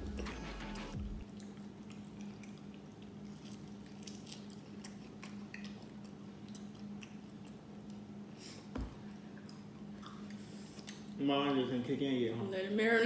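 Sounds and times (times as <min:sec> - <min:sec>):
low electrical hum: 0:00.0 - 0:13.0
faint chewing: 0:01.1 - 0:08.4, 0:09.3 - 0:11.2
wet mouth clicks and smacks: 0:01.2 - 0:08.0.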